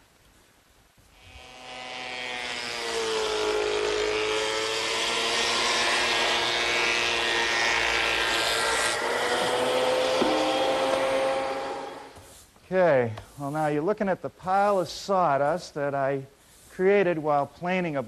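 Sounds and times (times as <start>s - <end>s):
planer cutting wood: 1.3s - 12.2s
planer motor whine: 1.4s - 12.2s.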